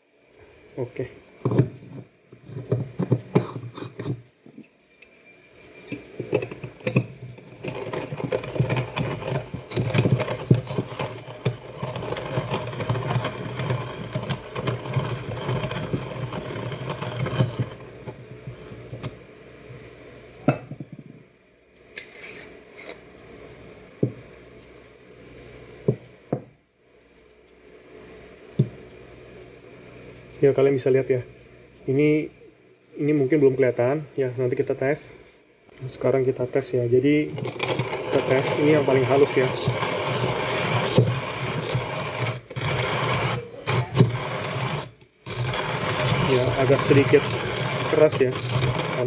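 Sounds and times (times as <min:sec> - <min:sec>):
hand grinder crunching coffee beans: 0:05.8 - 0:18.2, 0:35.9 - 0:49.0
grinder clicks and knocks: 0:05.9 - 0:19.2, 0:37.3 - 0:43.3.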